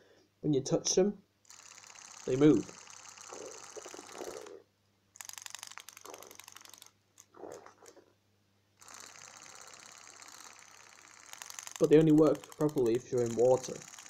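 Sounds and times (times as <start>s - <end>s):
toy motor ratcheting click: 1.5s - 4.6s, 5.2s - 7.4s, 8.8s - 14.0s.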